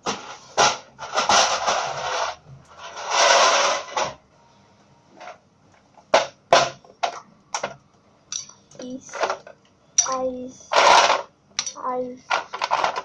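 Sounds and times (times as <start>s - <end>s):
plastic container scraping and rustling: 0.1s - 4.2s, 12.3s - 13.0s.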